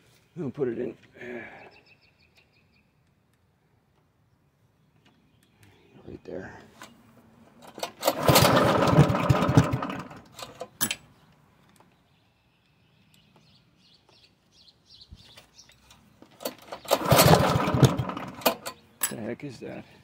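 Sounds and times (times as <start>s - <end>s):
lawnmower engine cranking: 7.6s - 11.1s, 15.8s - 19.3s.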